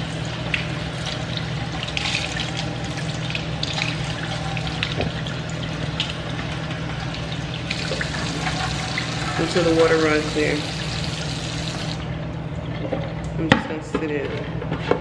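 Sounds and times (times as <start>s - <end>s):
rice being rinsed by hand: 0.0s - 12.0s.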